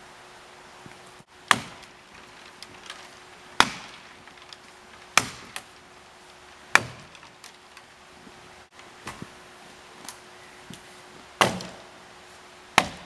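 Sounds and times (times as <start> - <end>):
axe chopping wood: 1.4 - 2.0, 3.6 - 4.2, 5.1 - 5.8, 6.7 - 7.2, 11.4 - 11.9, 12.7 - 13.0.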